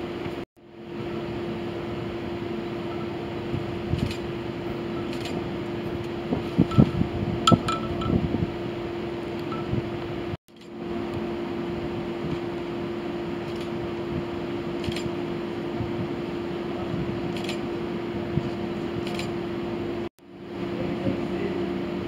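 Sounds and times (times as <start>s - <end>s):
steady mechanical hum: 0.0s - 22.0s
knocks and clicks: 6.7s - 8.2s.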